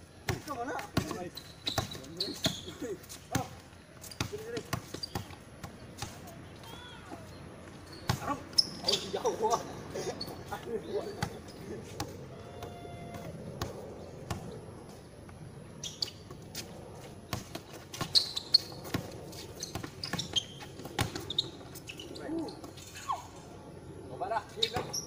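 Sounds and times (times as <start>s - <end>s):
basketball bouncing on concrete: 0.3s - 2.7s.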